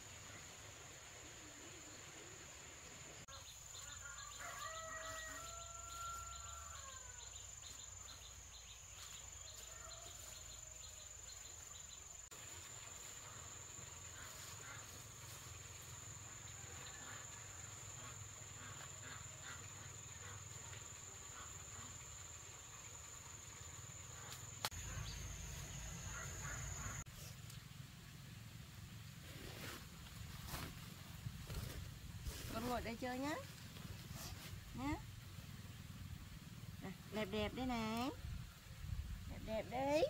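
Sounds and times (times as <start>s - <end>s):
insects buzzing: 0.0s - 27.1s
rooster crowing: 4.0s - 7.3s, 9.6s - 10.5s.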